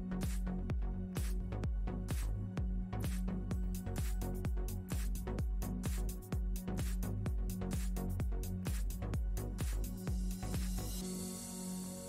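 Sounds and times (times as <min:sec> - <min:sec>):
electronic kick-drum beat: 0:00.0 - 0:12.0
soft held synth chords: 0:00.0 - 0:12.0
hiss: 0:10.7 - 0:12.0.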